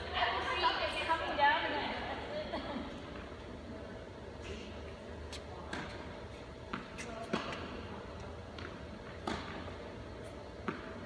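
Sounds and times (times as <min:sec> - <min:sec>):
tennis balls struck by rackets: 0:05.3 - 0:11.0.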